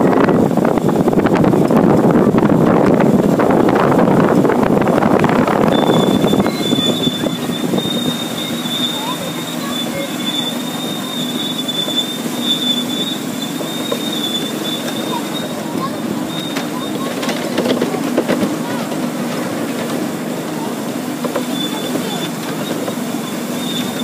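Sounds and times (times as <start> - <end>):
miniature train rumbling on track: 0.0 - 24.0
train wheels squealing: 5.7 - 17.4, 21.3 - 24.0.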